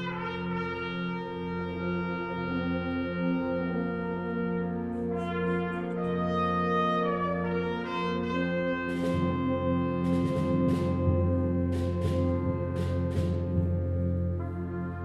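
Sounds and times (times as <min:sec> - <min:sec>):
brass chords: 0:00.0 - 0:15.0
higher melody line: 0:00.0 - 0:15.0
percussion strokes: 0:08.3 - 0:15.0.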